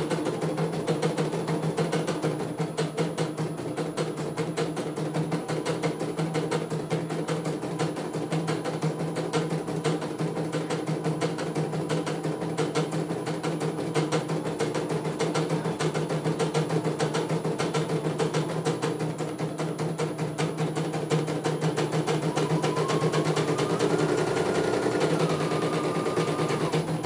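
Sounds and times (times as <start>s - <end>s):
steady motor hum: 21.9s - 27.0s.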